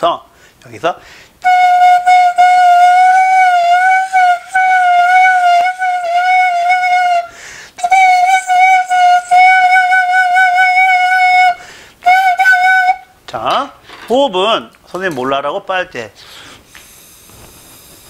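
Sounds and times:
bamboo flute long note: 0:01.4 - 0:13.1.

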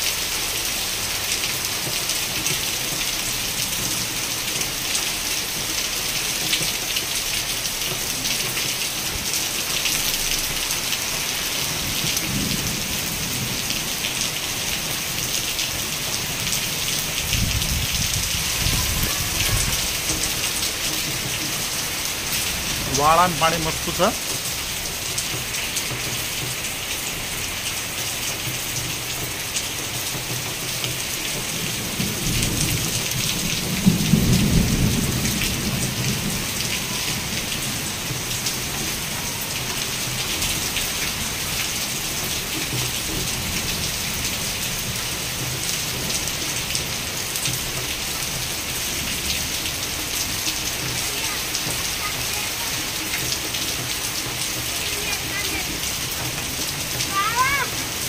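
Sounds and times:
heavy rain pouring: 0:00.0 - 0:58.0
thunder rumble: 0:16.3 - 0:23.0, 0:31.7 - 0:38.8.

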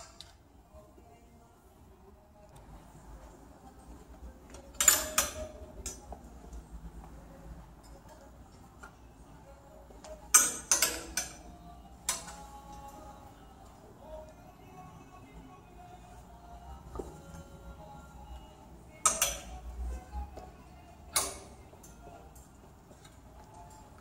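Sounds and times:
metal hangers clinking on rail: 0:04.5 - 0:06.2, 0:10.0 - 0:11.5, 0:12.1 - 0:13.1, 0:18.9 - 0:19.6, 0:21.1 - 0:24.0.

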